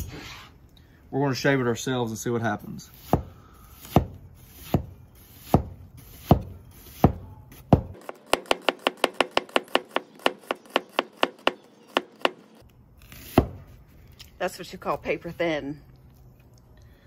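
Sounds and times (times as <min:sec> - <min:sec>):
knife chopping on cutting board: 0:03.0 - 0:12.4.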